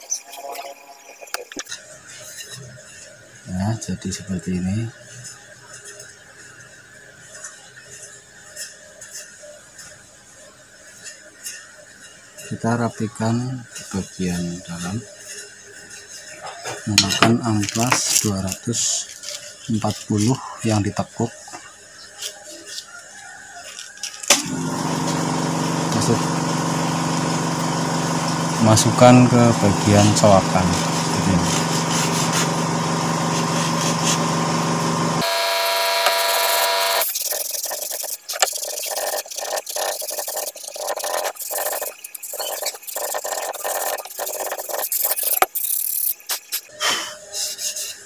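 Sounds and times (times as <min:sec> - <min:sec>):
sandpaper rustling: 0:17.5 - 0:20.4, 0:29.6 - 0:34.5, 0:36.2 - 0:46.7, 0:47.3 - 0:48.0
motor running steadily: 0:24.4 - 0:45.5.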